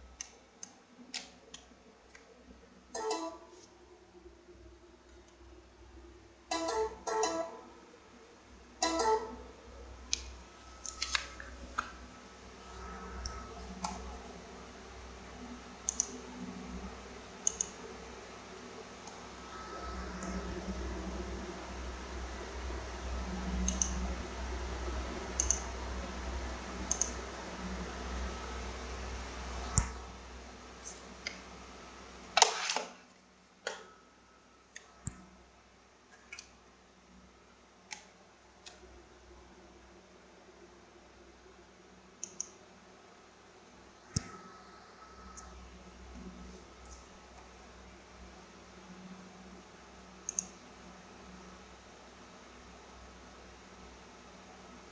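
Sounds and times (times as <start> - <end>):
faint low hum: 0.0 - 54.9
sharp clicks: 15.8 - 16.2, 17.4 - 17.8, 23.6 - 24.0, 25.4 - 25.6, 26.9 - 27.2, 42.2 - 42.6, 50.3 - 50.6.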